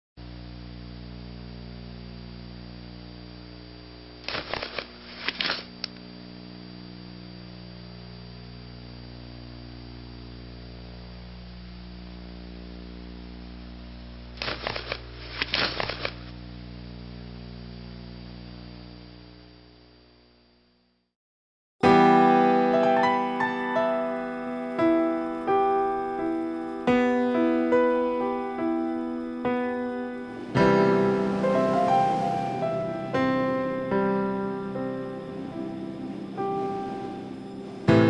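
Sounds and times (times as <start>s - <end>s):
electrical hum: 0.2s - 21.0s, 21.8s - 38.0s
thin high tone: 23.4s - 38.0s.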